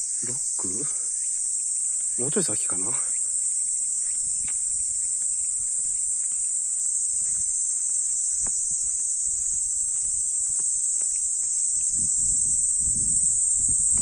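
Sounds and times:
insects buzzing: 0.0s - 14.0s.

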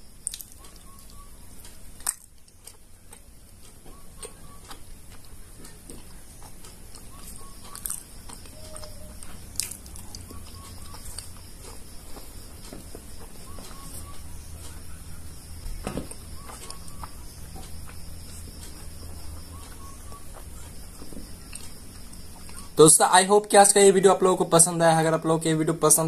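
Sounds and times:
person chewing wet mouth sounds: 0.2s - 1.2s, 2.0s - 12.4s, 16.1s - 22.8s.

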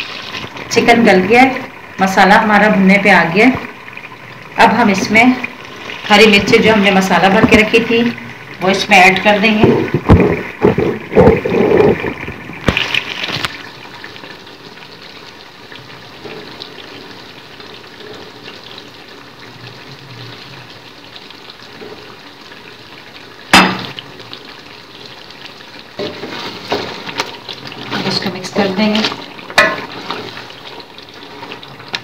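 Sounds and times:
curry simmering and bubbling: 0.0s - 32.0s
wooden spoon stirring in pot: 8.6s - 23.2s, 24.0s - 32.0s
sharp knock: 23.5s - 23.9s.

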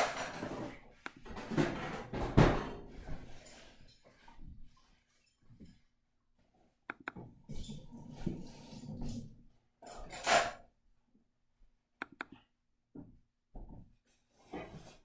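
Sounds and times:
dishes and utensils clinking: 0.0s - 0.7s.

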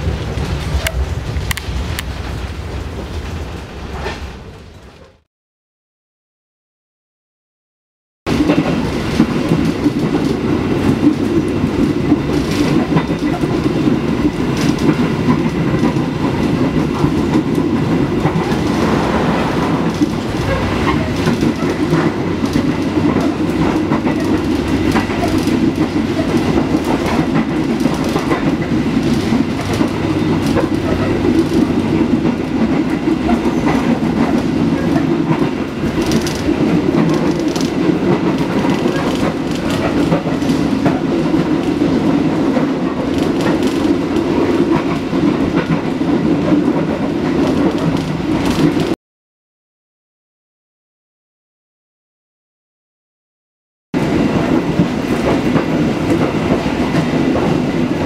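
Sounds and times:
passenger train running rumble: 0.0s - 5.2s, 8.3s - 49.0s, 54.0s - 58.0s.

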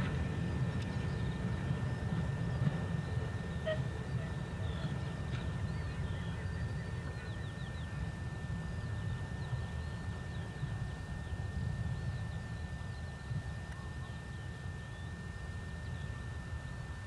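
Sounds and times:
steady high-pitched whine: 0.0s - 17.0s.

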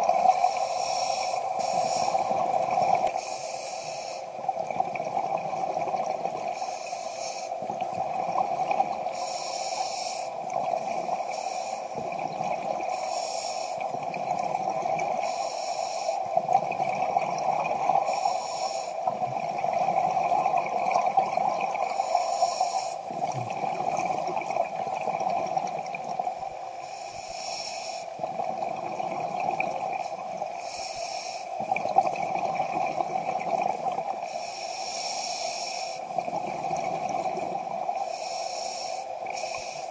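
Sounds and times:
regulator breath hissing: 0.5s - 2.4s, 3.1s - 4.3s, 6.6s - 7.6s, 9.1s - 10.4s, 11.2s - 11.9s, 12.9s - 13.8s, 15.2s - 16.2s, 18.1s - 19.1s, 22.0s - 23.1s, 26.8s - 28.1s, 30.6s - 31.6s, 34.2s - 36.1s, 38.0s - 39.9s
exhaust bubbling underwater: 19.1s - 22.0s, 23.0s - 26.5s, 28.2s - 30.0s, 31.6s - 34.2s, 36.1s - 38.0s.

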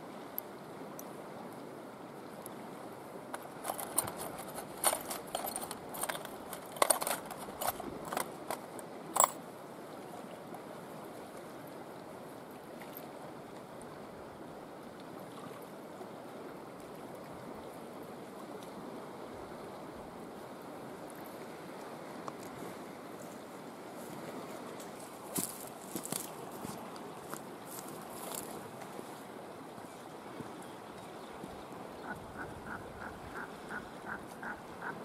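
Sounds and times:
metallic clicks and rattles: 3.3s - 9.4s.

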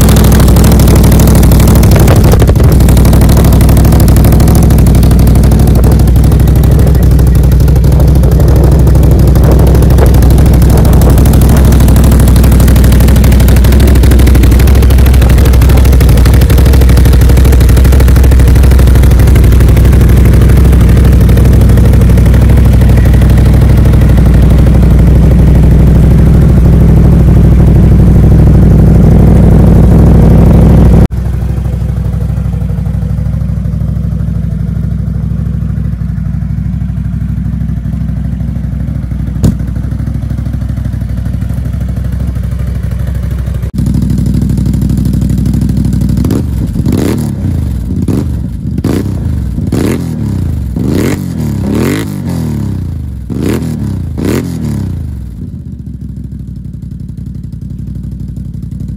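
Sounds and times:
engine throttle blips: 0.0s - 33.0s, 39.3s - 40.8s
engine idling: 0.0s - 58.9s.

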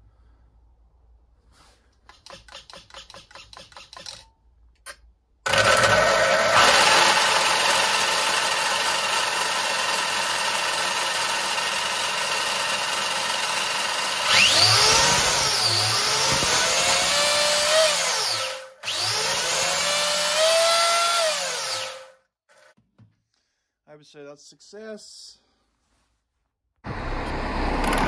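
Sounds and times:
motor spinning up with rising whine: 14.2s - 22.0s, 26.9s - 28.0s.

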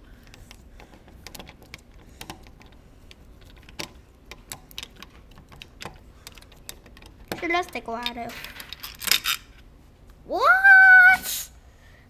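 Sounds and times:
screwdriver clicking in screw head: 0.2s - 7.8s.

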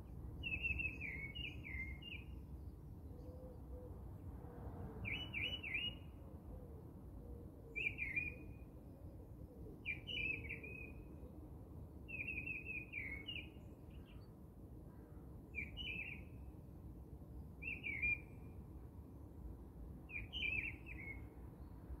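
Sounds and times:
bird chirping: 0.4s - 2.4s.

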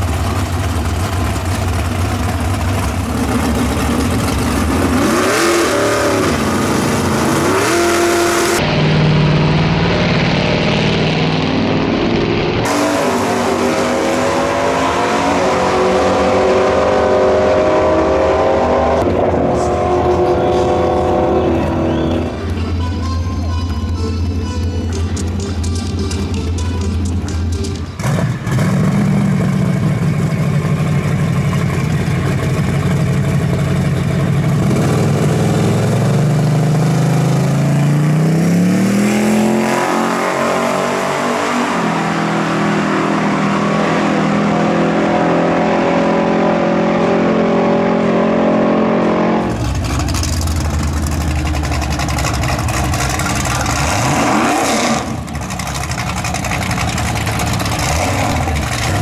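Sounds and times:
car engine accelerating: 0.0s - 59.0s
deep car engine rumble: 0.0s - 59.0s.

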